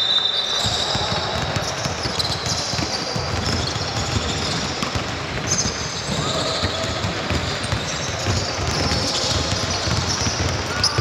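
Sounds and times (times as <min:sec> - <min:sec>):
basketballs bouncing on court: 0:00.6 - 0:11.0.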